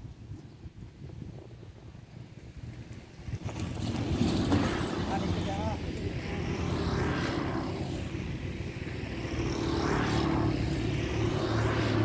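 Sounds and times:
engine drone: 3.4s - 12.0s.

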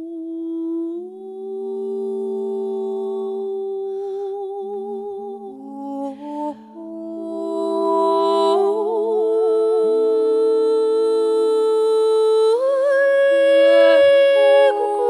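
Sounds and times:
women humming in harmony: 6.6s - 15.0s.

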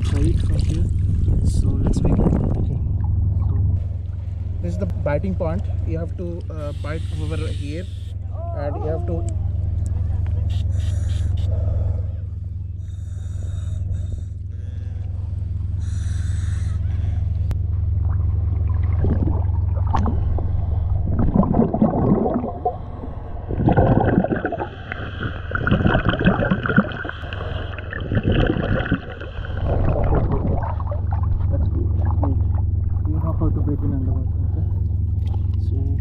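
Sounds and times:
gurgling exhaust bubbles: 0.0s - 4.8s, 17.5s - 36.0s
steady low hum: 0.0s - 36.0s.

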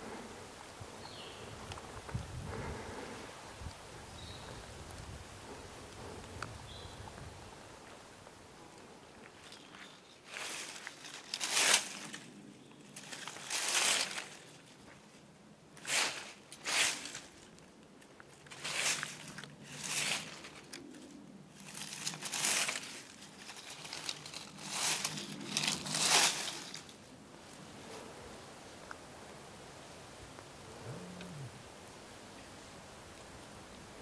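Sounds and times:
footsteps crunching dry leaves: 9.4s - 12.3s, 12.9s - 14.8s, 15.8s - 17.5s, 18.5s - 20.7s, 21.6s - 27.1s.

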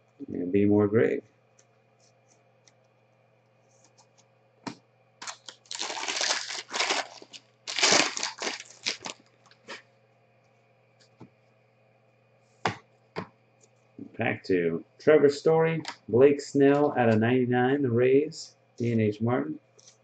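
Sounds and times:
foil wrapper tearing and crinkling: 5.2s - 9.8s.

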